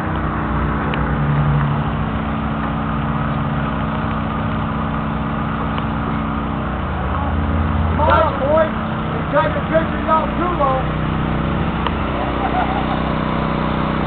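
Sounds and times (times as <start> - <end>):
pump engine running: 0.0 - 14.0.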